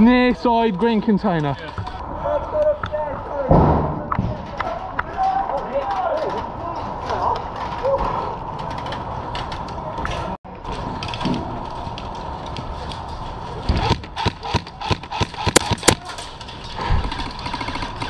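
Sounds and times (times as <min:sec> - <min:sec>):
wind: 0:00.0 - 0:18.0
airsoft gunfire clicks and cracks: 0:13.7 - 0:16.3.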